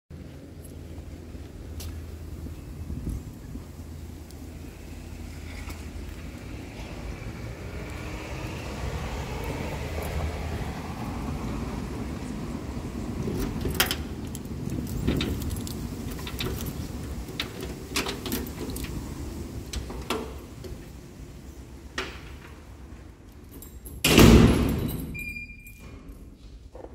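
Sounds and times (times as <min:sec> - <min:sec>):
car passing: 0:03.7 - 0:23.3
keys jangling: 0:13.2 - 0:19.2, 0:23.3 - 0:26.3.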